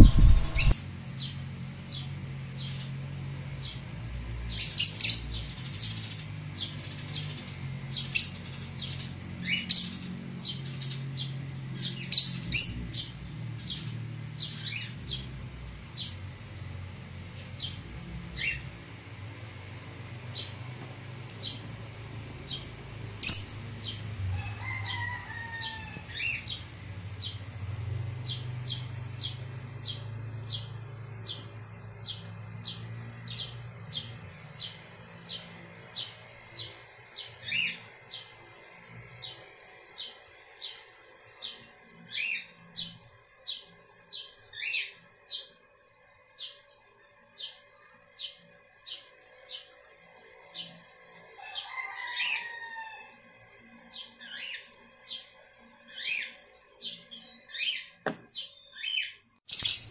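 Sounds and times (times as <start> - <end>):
low steady hum: 0.0 - 51.4
birds chirping: 0.0 - 59.9
longer lower bird calls: 4.5 - 18.8, 21.4 - 45.7.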